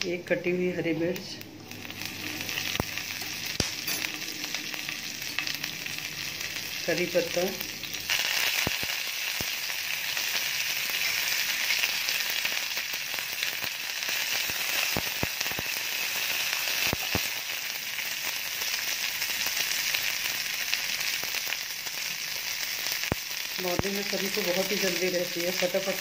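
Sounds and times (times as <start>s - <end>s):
leaves sizzling in hot oil: 0.0s - 26.0s.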